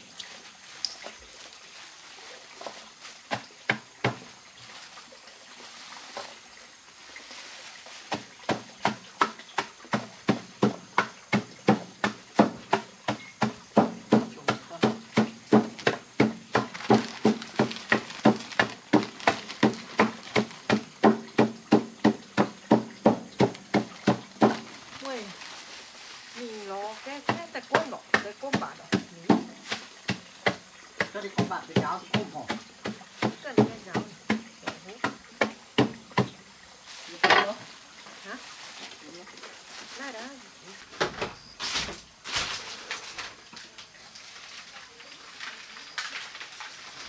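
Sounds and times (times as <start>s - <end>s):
chopping on wooden board: 8.1s - 24.6s.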